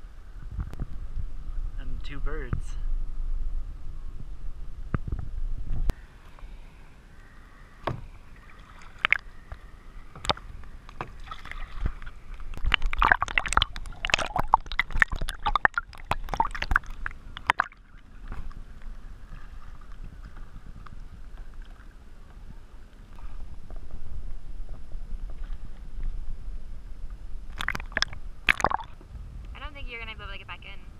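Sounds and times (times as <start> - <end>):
water sloshing and splashing: 5.0 - 29.2.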